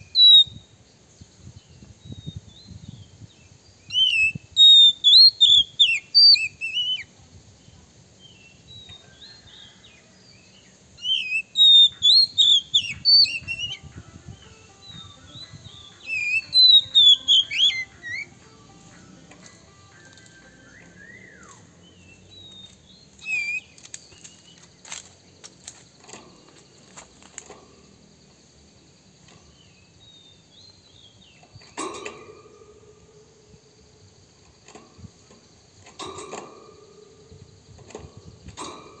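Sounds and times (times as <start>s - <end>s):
bird whistling notes: 3.9s - 7.1s, 11.0s - 18.5s, 19.8s - 21.8s, 22.4s - 24.4s.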